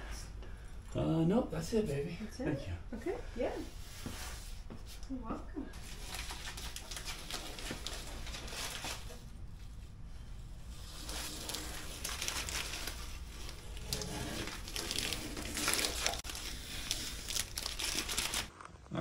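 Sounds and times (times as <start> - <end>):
masking tape peeling and crinkling: 5.8 - 18.6.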